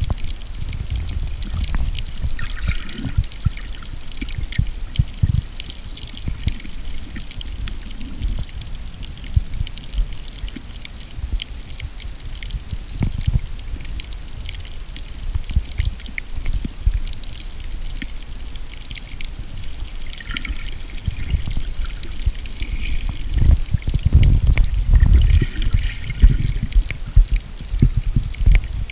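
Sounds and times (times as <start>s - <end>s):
underwater crackling clicks: 0.0s - 28.9s
underwater water surge: 0.8s - 5.4s, 19.0s - 28.9s.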